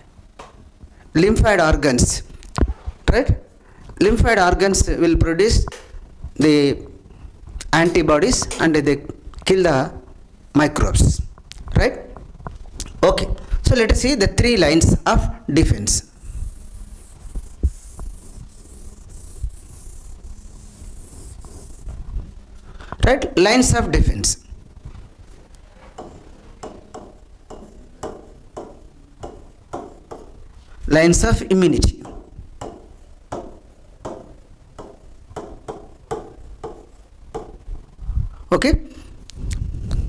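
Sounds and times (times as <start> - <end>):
faint hum: 0.0 - 40.0
steady hiss: 0.0 - 40.0
hand rubbing on glass touchscreen: 16.0 - 22.3
pen tapping on display board: 26.0 - 30.4, 32.0 - 37.6.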